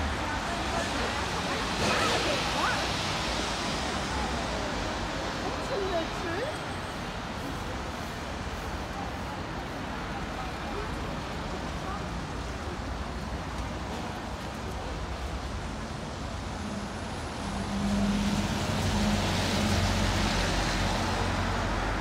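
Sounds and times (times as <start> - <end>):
road noise from passing cars: 0.0 - 22.0.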